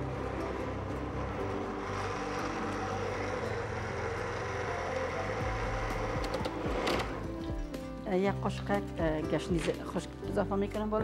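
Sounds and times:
blender running: 0:00.0 - 0:07.5.

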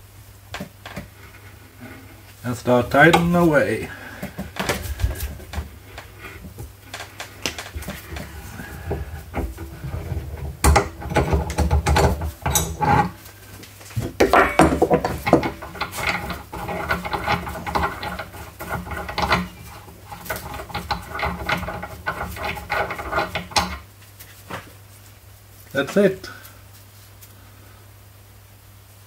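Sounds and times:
metal tool handling: 0:06.9 - 0:13.2, 0:14.0 - 0:23.8.

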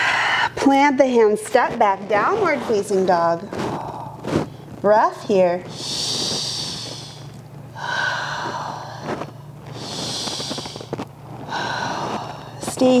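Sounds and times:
woman breathing slowly: 0:00.0 - 0:00.6, 0:05.7 - 0:12.8.

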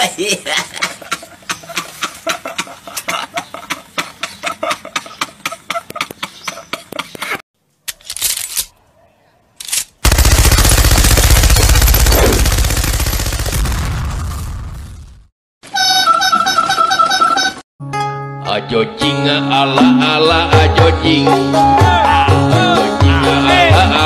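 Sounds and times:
machine-gun fire: 0:10.0 - 0:15.1.

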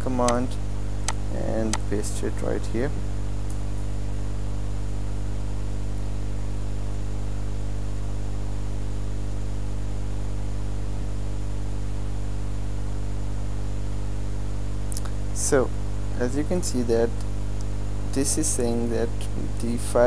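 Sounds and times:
constant hiss: 0:00.0 - 0:03.8, 0:14.7 - 0:20.0
electrical mains hum: 0:00.0 - 0:20.0.

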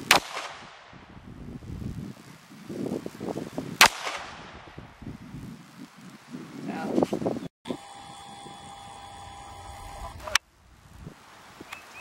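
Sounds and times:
gunshot: 0:00.0 - 0:01.0, 0:03.8 - 0:04.8.

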